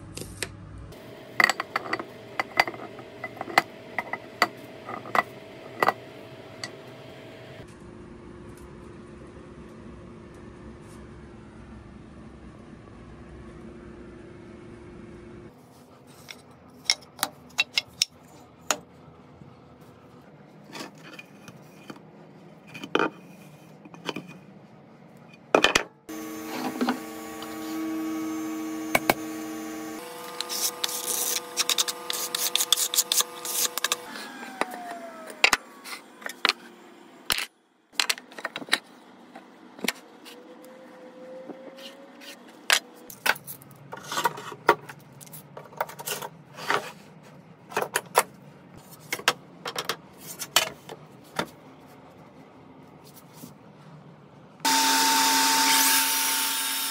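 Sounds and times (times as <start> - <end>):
machine humming: 0.9 - 8.1, 26.1 - 37.3, 54.6 - 56.9.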